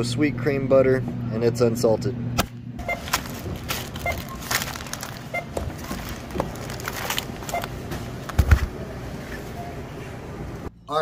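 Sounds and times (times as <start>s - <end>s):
barcode scanner beeps: 2.8s - 3.2s, 3.9s - 4.5s, 5.3s - 6.2s, 7.4s - 7.8s
packages clattering: 2.8s - 8.7s.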